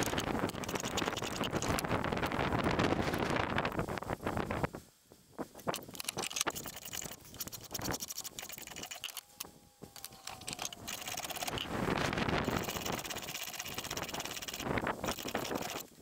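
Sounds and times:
blade scraping wood: 10.0 - 16.0.

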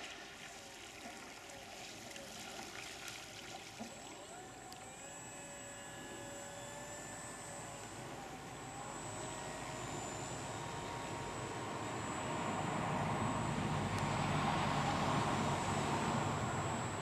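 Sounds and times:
model plane motor whining: 1.9 - 17.0
high steady whine: 3.8 - 17.0.

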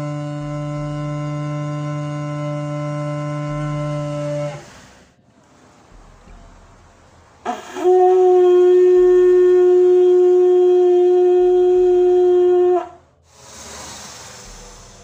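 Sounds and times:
horn blown in long buzzy note: 0.0 - 5.0, 7.4 - 13.1.

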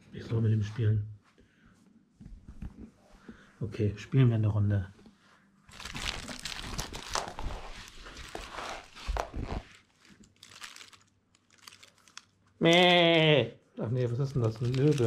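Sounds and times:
plush toy crinkling: 5.7 - 12.8, 14.2 - 15.0.

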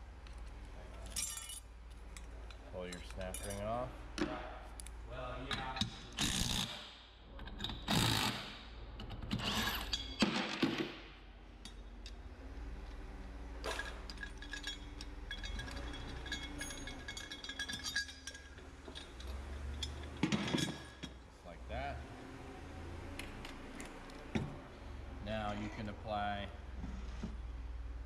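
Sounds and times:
metal clinks: 0.9 - 3.9, 13.6 - 21.2.

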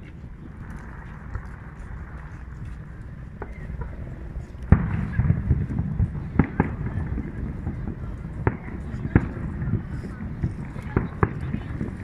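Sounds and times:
rumbling crackle: 0.0 - 12.0
steady low rumble: 0.0 - 12.0.

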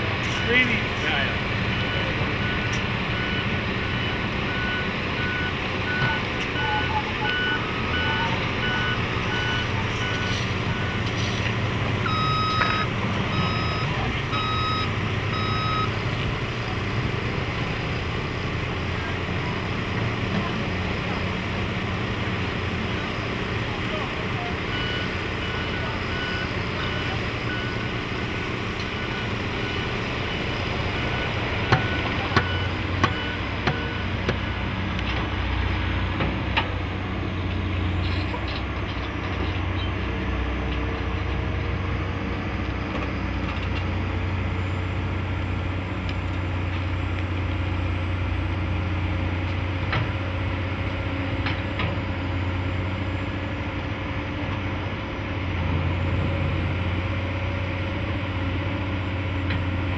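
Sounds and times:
heavy diesel machinery running: 0.0 - 59.9
backup alarm beeping: 12.1 - 16.0.

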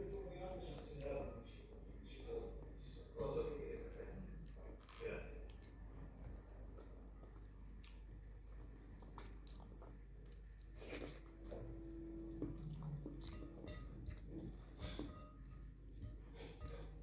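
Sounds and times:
person chewing: 3.8 - 17.0.

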